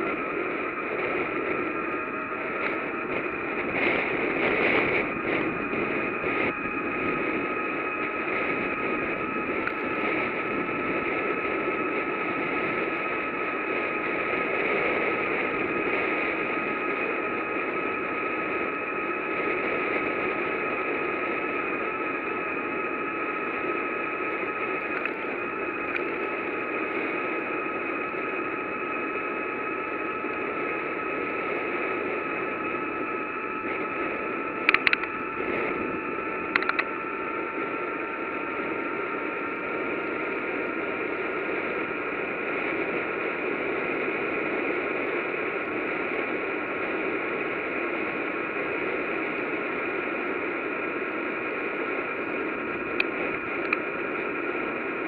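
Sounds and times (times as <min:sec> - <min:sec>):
faint whine: 0:00.0 - 0:55.0
short sharp clicks: 0:36.6 - 0:36.9.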